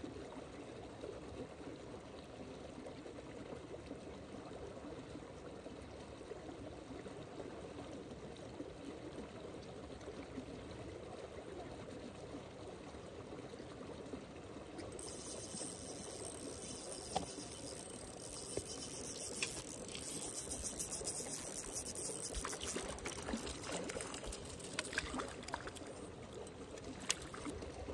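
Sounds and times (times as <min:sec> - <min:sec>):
running water rushing: 0:14.9 - 0:27.9.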